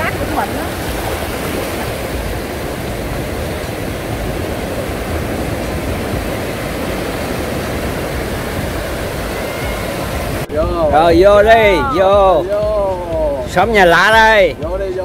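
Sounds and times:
surf breaking on beach: 0.0 - 14.5.

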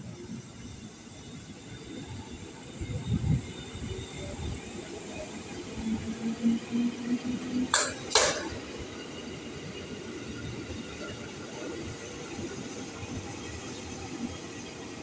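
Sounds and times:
electric train rolling: 0.0 - 15.0
sharp knocks: 7.8 - 8.6.

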